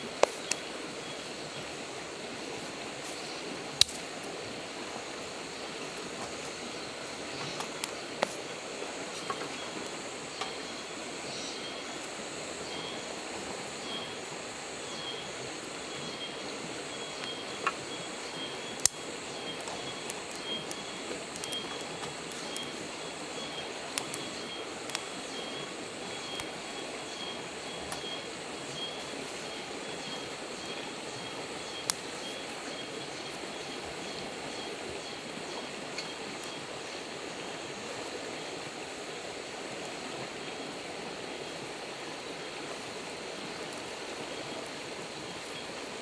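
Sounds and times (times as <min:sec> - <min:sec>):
steady outdoor hiss: 0:00.0 - 0:46.0.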